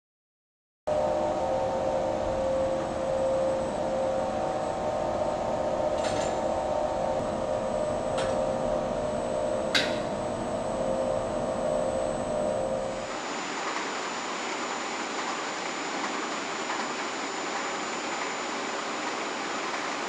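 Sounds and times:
production-line machinery humming: 0:00.9 - 0:20.0.

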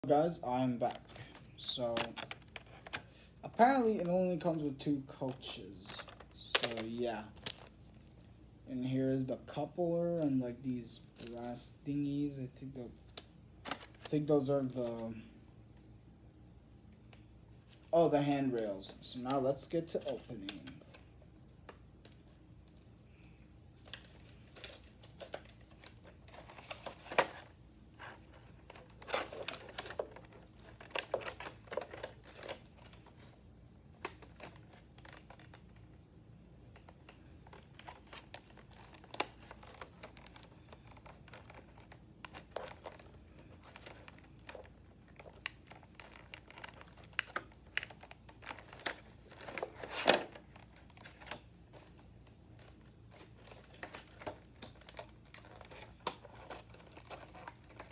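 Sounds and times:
plastic packaging crinkling: 0:00.0 - 0:08.3, 0:12.6 - 0:15.2, 0:23.7 - 0:36.0, 0:36.7 - 0:57.9.

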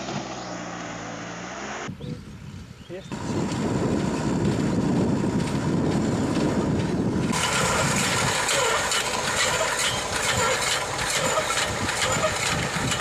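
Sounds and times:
tractor engine rumbling: 0:00.0 - 0:13.0
cultivator hissing and rattling in soil: 0:03.2 - 0:13.0.

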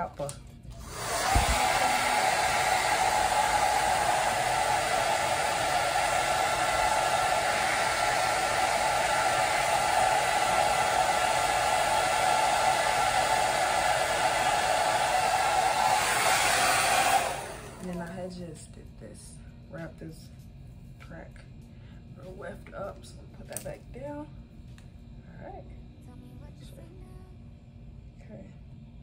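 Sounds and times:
hair dryer running: 0:00.7 - 0:18.4.

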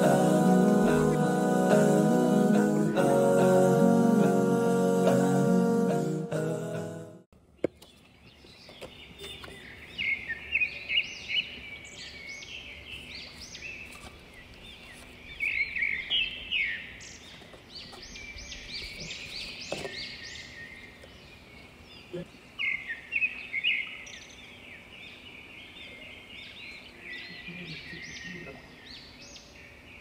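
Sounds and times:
small birds chirping: 0:07.5 - 0:30.0.

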